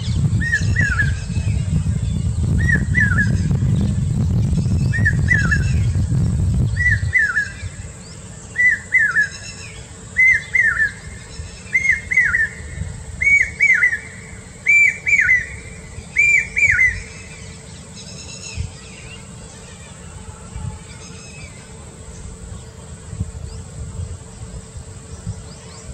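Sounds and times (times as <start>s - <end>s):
bird calling sharp notes: 8.4s - 21.8s.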